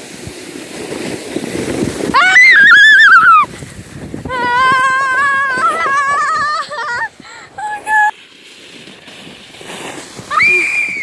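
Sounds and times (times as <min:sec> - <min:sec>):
sled sliding over snow: 0:00.0 - 0:11.0
wind on microphone: 0:00.8 - 0:08.0.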